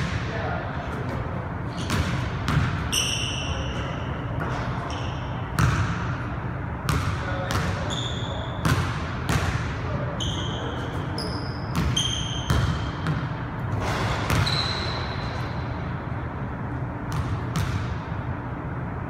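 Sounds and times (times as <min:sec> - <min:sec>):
sneakers squeaking on court: 0:00.9 - 0:16.0.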